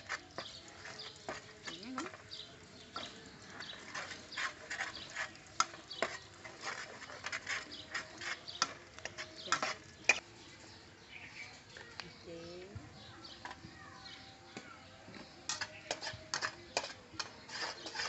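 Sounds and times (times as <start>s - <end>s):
metal spatula scraping a wok: 0.0s - 10.8s, 15.3s - 18.0s.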